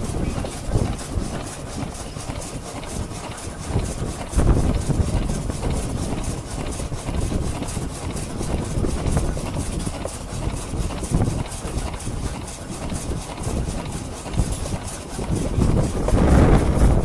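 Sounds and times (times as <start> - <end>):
low rumble: 15.6 - 17.0.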